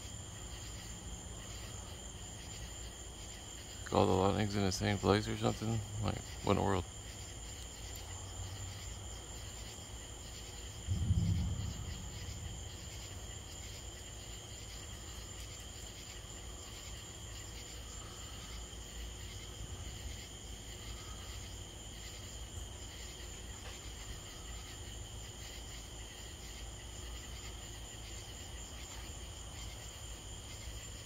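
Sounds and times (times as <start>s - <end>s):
night insects chirring: 0.0s - 31.0s
short low thump: 10.8s - 13.1s.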